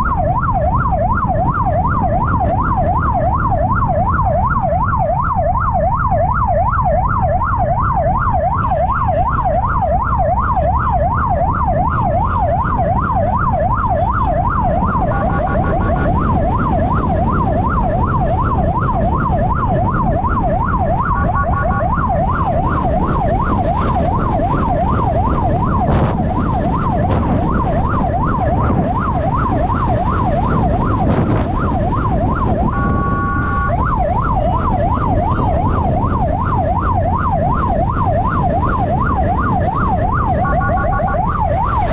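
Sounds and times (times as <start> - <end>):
electronic siren yelp: 0.0 - 41.9
engine and road rumble: 0.0 - 41.9
horn blasts: 32.7 - 33.8.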